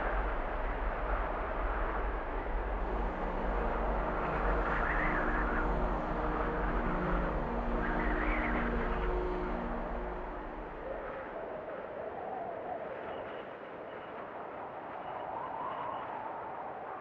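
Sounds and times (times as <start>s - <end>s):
freight train rumbling past: 0.9s - 10.8s.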